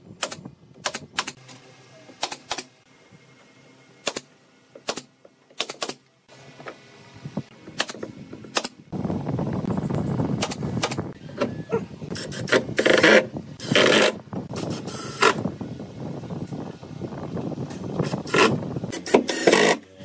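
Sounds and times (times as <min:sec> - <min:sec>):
nail gun shots: 0:00.2 - 0:01.4, 0:02.2 - 0:02.7, 0:04.0 - 0:06.0, 0:07.8 - 0:08.8, 0:10.4 - 0:11.0
cordless drill driving screws: 0:18.3 - 0:19.8.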